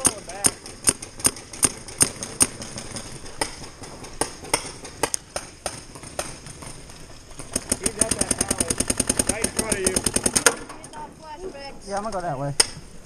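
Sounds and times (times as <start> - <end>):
paintball markers firing: 0.0 - 6.6, 7.4 - 10.8.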